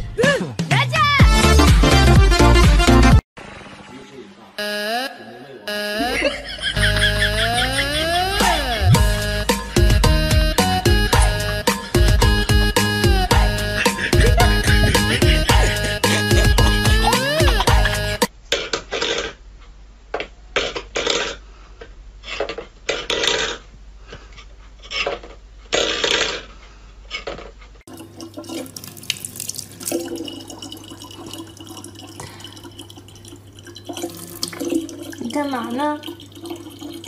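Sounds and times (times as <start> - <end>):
water splashing: 27.9 - 37.0.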